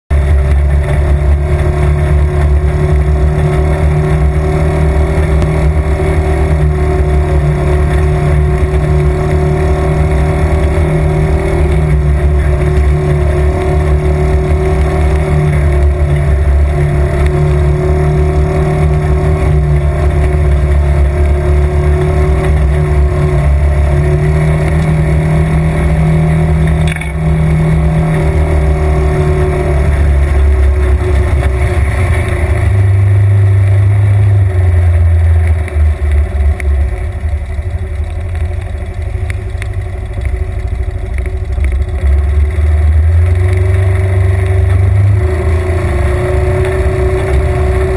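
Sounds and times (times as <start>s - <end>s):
vehicle engine droning: 0.1s - 47.9s.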